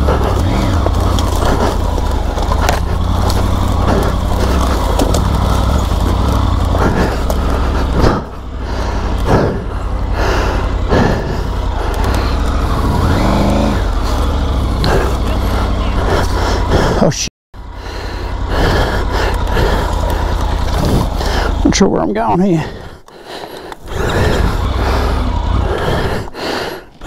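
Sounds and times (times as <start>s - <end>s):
motorcycle engine labouring: 0.0s - 27.0s.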